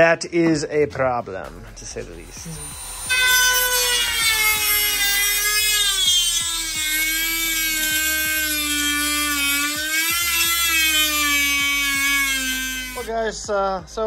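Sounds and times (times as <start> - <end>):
power tool motor whining: 2.1 - 13.1.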